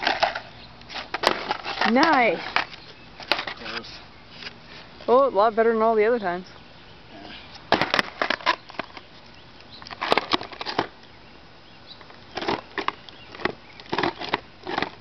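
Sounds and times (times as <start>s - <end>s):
skateboard clattering on asphalt: 7.7s - 9.1s, 12.3s - 15.0s.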